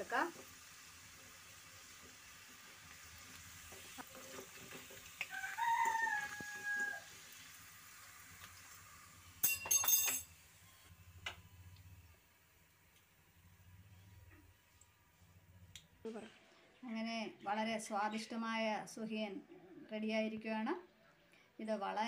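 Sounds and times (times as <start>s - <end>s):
hot oil sizzling: 0.0s - 16.1s
rooster crowing: 5.3s - 7.2s
metal clinking on strainer: 9.4s - 10.3s.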